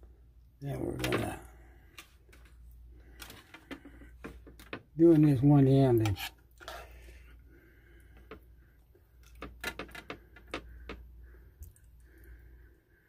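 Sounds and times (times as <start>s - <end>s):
metal spoon scraping a plate: 6.0s - 7.0s.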